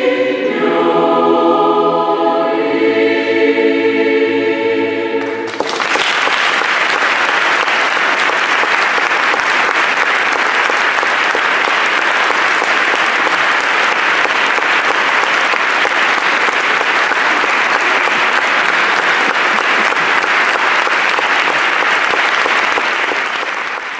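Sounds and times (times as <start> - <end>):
choir holding a chord: 0.0 - 5.7
audience applause: 5.4 - 23.9.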